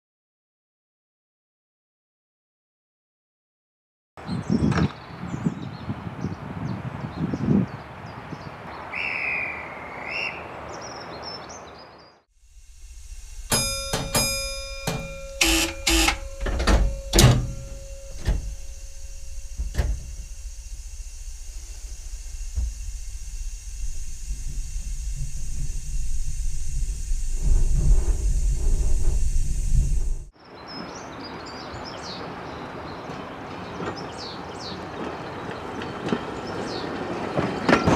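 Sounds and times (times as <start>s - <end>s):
diesel engine idling: 12.4s - 30.3s
sharp clicks and knocks: 13.5s - 30.3s.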